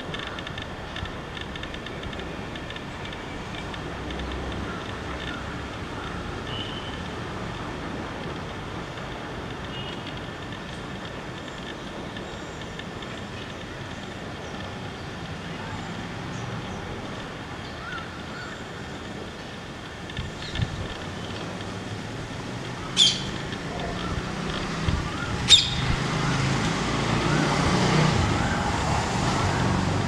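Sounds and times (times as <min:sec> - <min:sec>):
road traffic noise: 0:00.0 - 0:30.0
parakeet squawks: 0:23.0 - 0:23.3, 0:25.5 - 0:25.8.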